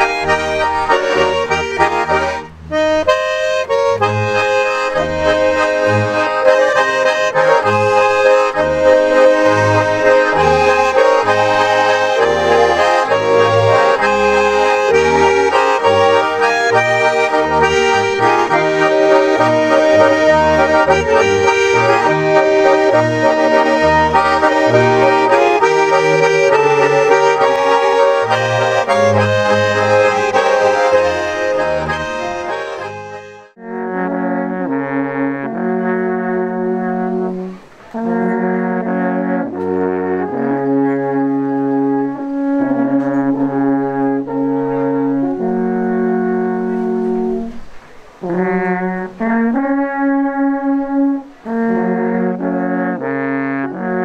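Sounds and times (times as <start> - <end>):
accordions playing folk tune: 0.0 - 54.0.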